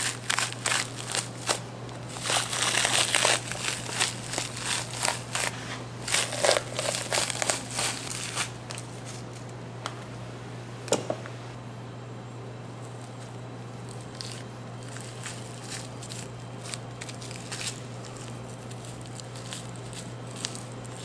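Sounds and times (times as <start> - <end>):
crinkling and rustling: 0.0 - 9.5, 12.8 - 21.0
steady low hum: 0.0 - 21.0.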